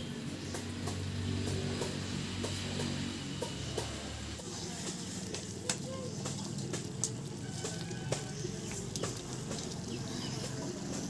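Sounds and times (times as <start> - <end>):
fire crackling: 4.2 - 11.0
curry bubbling in pan: 4.4 - 11.0.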